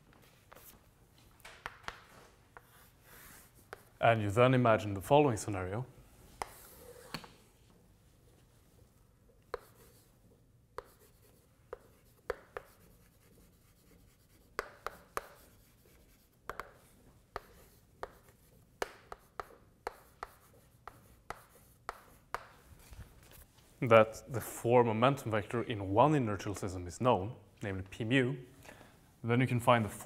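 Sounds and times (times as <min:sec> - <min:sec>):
chalk tapping and scratching on blackboard: 0:00.3 - 0:00.8, 0:01.6 - 0:04.0, 0:06.4 - 0:07.4, 0:09.4 - 0:23.4.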